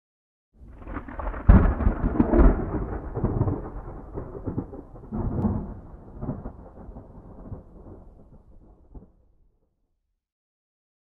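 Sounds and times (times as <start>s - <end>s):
thunder rumbling: 0.6s - 9.3s.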